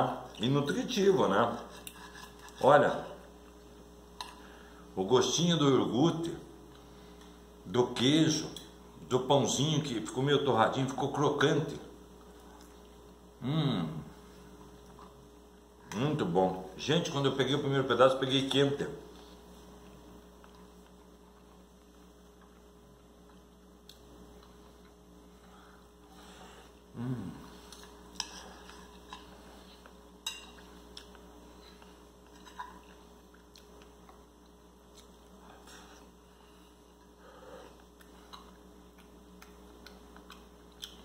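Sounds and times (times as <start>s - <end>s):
electrical hum: 0.0s - 41.0s
person murmuring: 13.4s - 14.1s, 26.9s - 27.6s
person chewing: 26.7s - 36.2s, 36.9s - 41.0s.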